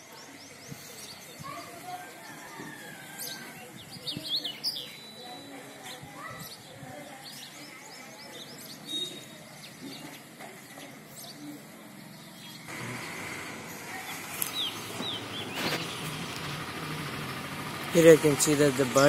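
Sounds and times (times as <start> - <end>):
small birds chirping: 0.0 - 19.0
steady engine noise: 11.9 - 19.0.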